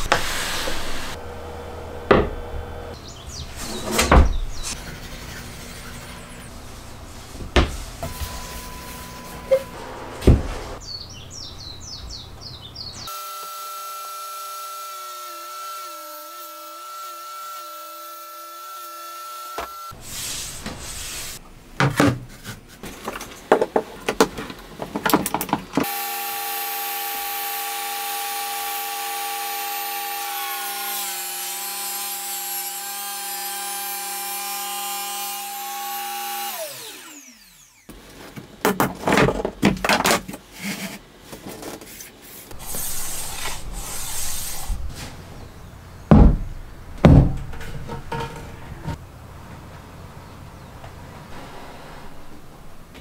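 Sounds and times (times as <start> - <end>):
table saw cutting wood: 0.0 - 3.0, 13.1 - 20.0, 25.8 - 37.9, 42.5 - 44.8
wooden knocks and clatter: 46.1 - 49.0.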